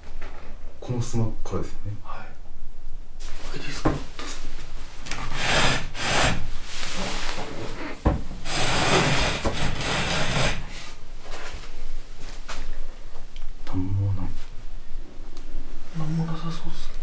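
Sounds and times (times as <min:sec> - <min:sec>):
wooden sliding doors rubbing: 0:05.1 - 0:10.9.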